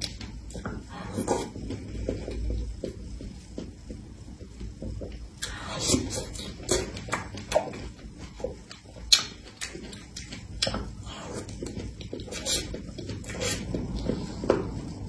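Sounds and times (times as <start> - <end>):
mouth chewing smacks and clicks: 5.4 - 13.8.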